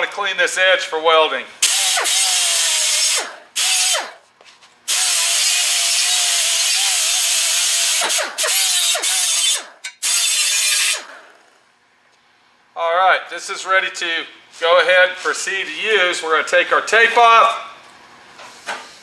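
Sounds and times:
air angle grinder whining: 1.6s - 4.2s, 4.9s - 11.6s.

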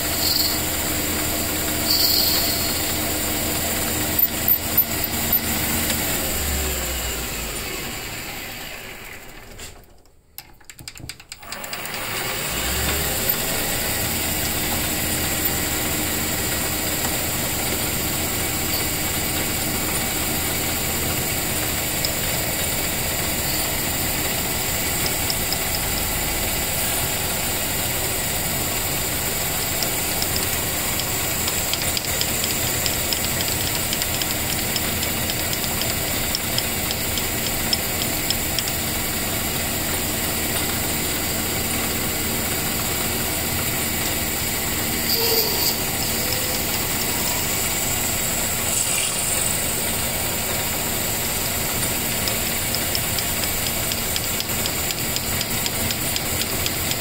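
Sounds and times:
metal lathe running: 0.0s - 9.0s, 11.4s - 57.0s
drill boring into fiberglass: 11.4s - 26.9s.

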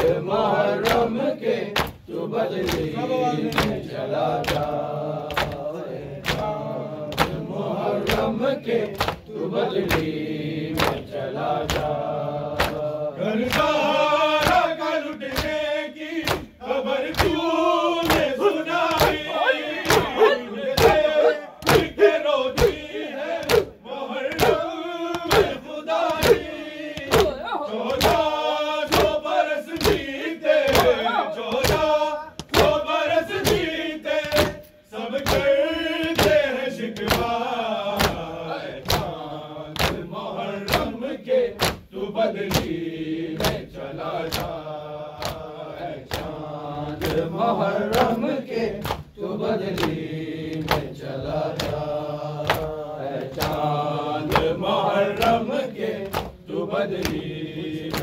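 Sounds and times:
men chanting in unison: 0.0s - 58.0s
hands striking chest: 18.0s - 23.7s, 24.3s - 28.3s.

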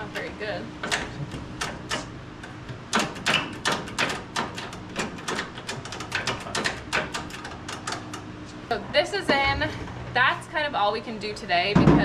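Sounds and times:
clicks and knocks of tools: 0.8s - 8.6s.

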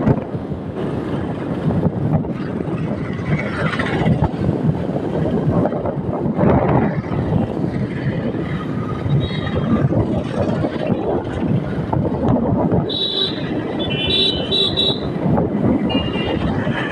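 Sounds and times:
wind buffeting microphone: 0.0s - 16.9s.

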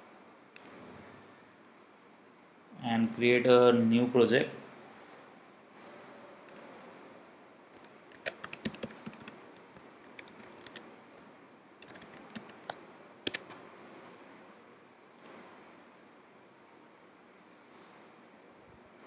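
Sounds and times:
typing on computer keyboard: 7.7s - 13.6s.

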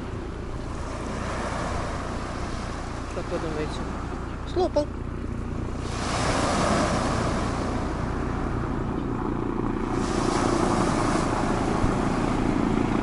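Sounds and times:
waves breaking on pebble beach: 5.6s - 8.6s, 9.8s - 13.0s.

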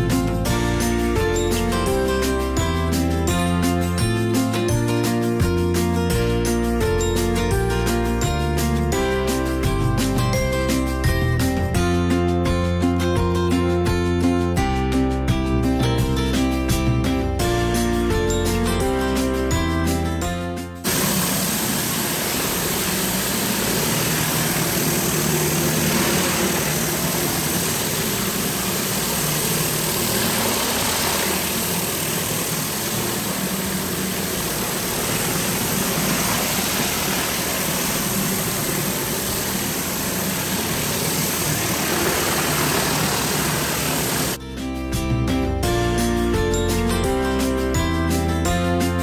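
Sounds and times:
high-pressure water spray hiss: 20.8s - 44.4s
pressure washer engine hum: 20.8s - 44.4s.

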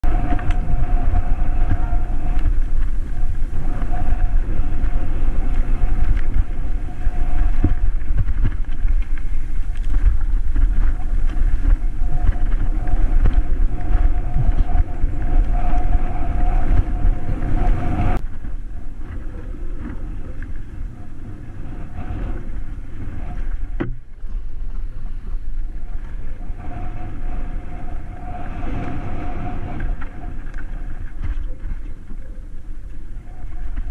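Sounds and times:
bike rattling over stones: 0.0s - 17.4s
thin whine: 0.0s - 33.9s
wind buffeting microphone: 0.0s - 33.9s.

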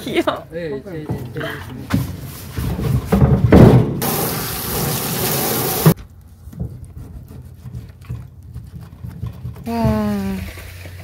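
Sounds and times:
faucet water running into metal sink: 4.0s - 5.9s.

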